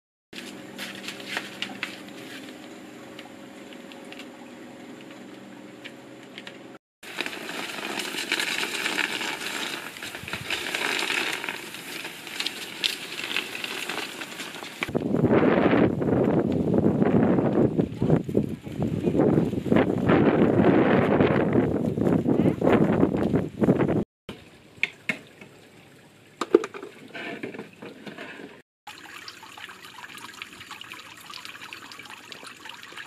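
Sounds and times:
plastic pinwheels crinkling: 7.1 - 14.9
wind buffeting microphone: 14.9 - 24.0.

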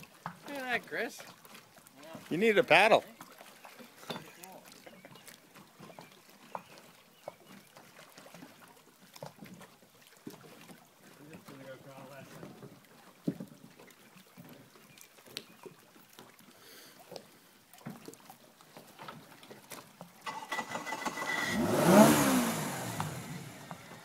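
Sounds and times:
vehicle passing by: 21.3 - 24.0.

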